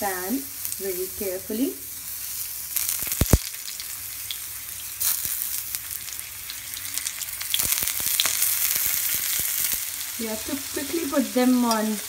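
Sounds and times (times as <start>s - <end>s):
oil sizzling in a pan: 0.0s - 12.0s.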